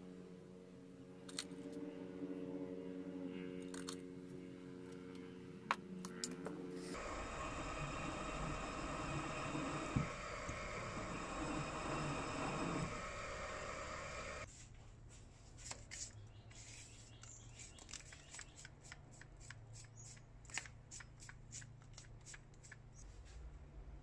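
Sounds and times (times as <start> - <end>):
drill cutting metal: 7.0 - 14.5.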